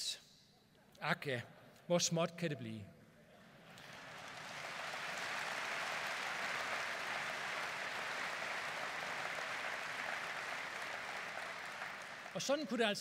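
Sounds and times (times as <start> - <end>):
audience applauding: 3.7 - 13.0.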